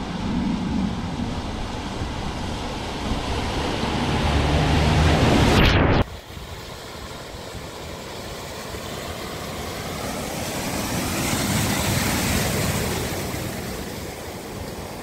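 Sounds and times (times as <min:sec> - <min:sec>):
car splashing through floodwater: 0:02.7 - 0:15.0.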